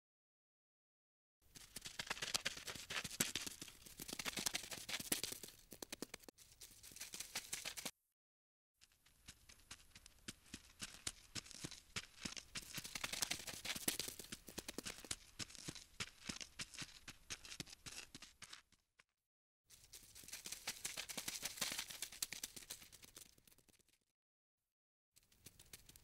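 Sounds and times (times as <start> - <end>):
scratchy clicking and rustling: 1.6 - 6.3.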